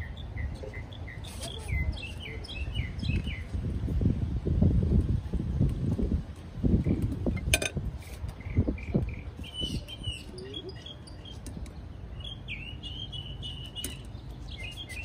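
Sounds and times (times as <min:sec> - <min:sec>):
small birds chirping: 0:00.0 - 0:03.6, 0:08.3 - 0:15.0.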